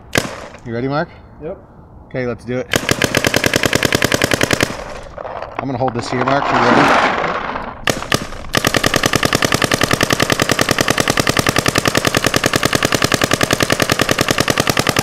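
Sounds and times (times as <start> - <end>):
paintball marker firing: 0.0 - 0.6, 2.7 - 5.1, 7.8 - 15.0.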